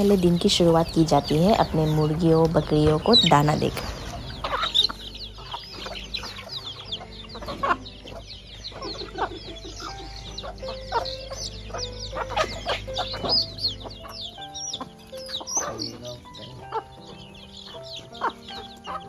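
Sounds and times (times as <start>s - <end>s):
chicks peeping: 0.0s - 19.0s
hens clucking: 0.0s - 19.0s.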